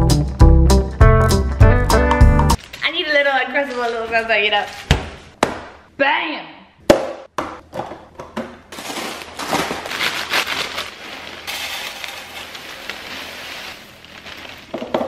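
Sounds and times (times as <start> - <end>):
plastic bag crinkling: 8.7 - 15.0
cereal pouring into container: 10.0 - 15.0.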